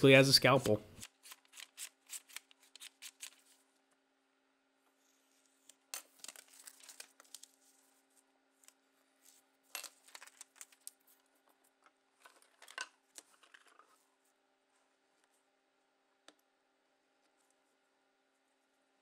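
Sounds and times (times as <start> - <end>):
faint steady hum: 0.0 - 19.0
scalpel slicing paper: 1.0 - 3.5.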